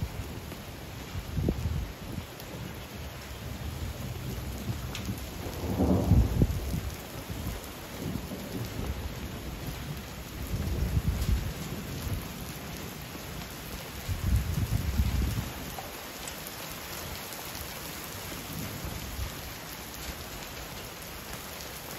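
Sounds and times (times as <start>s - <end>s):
heavy rain falling: 0.0s - 21.9s
thunder rumbling: 3.4s - 13.4s, 14.1s - 15.6s.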